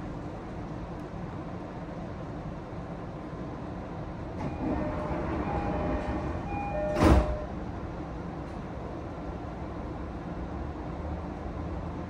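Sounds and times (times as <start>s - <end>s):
train low hum: 0.0s - 12.0s
short door warning tones: 4.4s - 7.6s
sliding door shutting thump: 4.6s - 7.5s.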